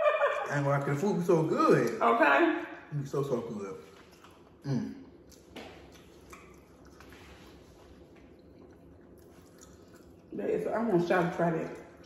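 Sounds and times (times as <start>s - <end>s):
wet chewing and mouth smacks: 3.8s - 10.4s.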